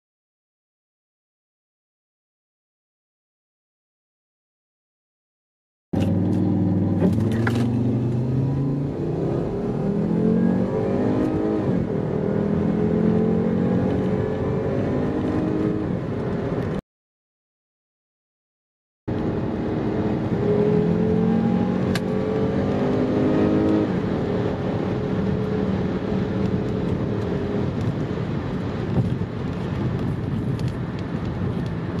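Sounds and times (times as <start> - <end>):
car engine accelerating: 6.0 - 16.8, 19.1 - 32.0.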